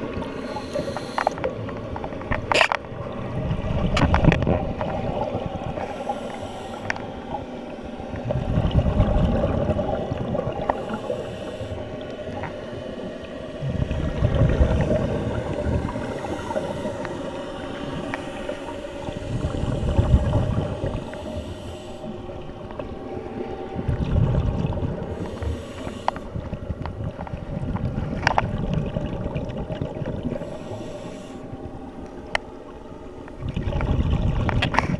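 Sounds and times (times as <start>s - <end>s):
exhaled bubbles gurgling: 0.0s - 34.9s
regulator hissing inhalations: 0.3s - 1.5s, 5.8s - 7.0s, 10.8s - 11.9s, 21.0s - 22.1s, 25.2s - 26.3s, 30.4s - 31.4s.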